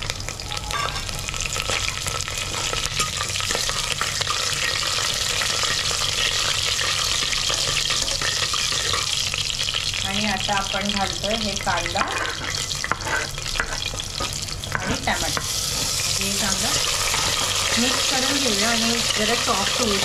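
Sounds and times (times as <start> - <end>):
hot oil sizzling and crackling: 0.0 - 20.0
steel ladle stirring: 12.0 - 16.0.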